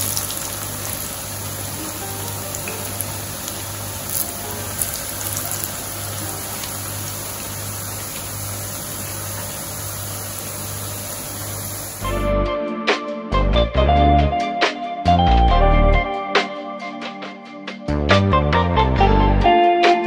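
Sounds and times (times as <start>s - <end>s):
food sizzling in hot oil: 0.0s - 12.2s
music: 1.7s - 7.2s, 12.0s - 20.0s.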